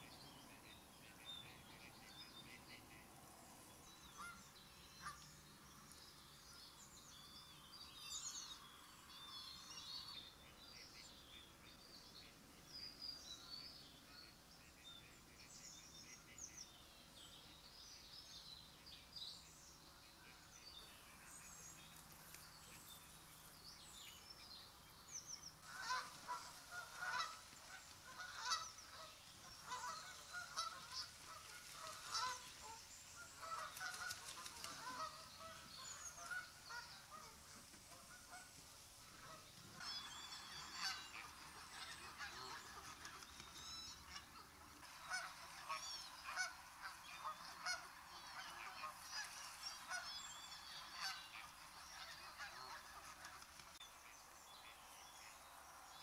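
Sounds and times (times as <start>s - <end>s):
small birds chirping: 3.7s - 56.0s
geese honking: 25.6s - 43.2s, 43.9s - 53.4s.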